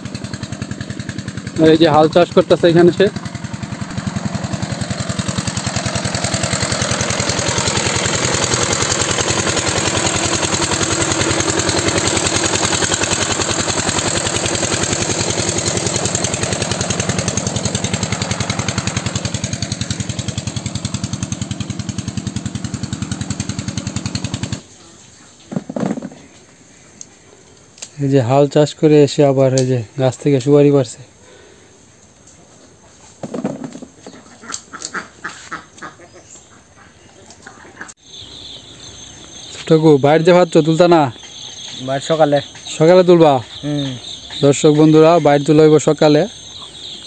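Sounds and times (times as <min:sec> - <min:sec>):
power tiller diesel engine thudding: 0:00.0 - 0:24.6.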